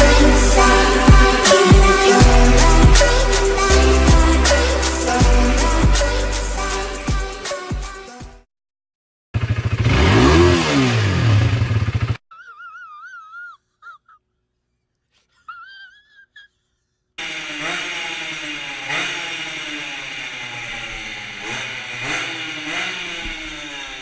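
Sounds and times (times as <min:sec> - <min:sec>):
moped engine revving: 0:00.0 - 0:06.1, 0:09.4 - 0:12.2, 0:17.2 - 0:24.0.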